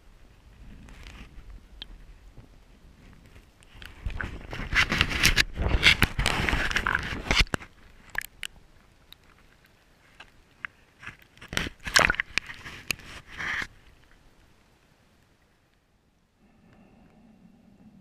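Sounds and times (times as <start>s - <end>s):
water splashing against camera housing: 11.0s - 13.7s.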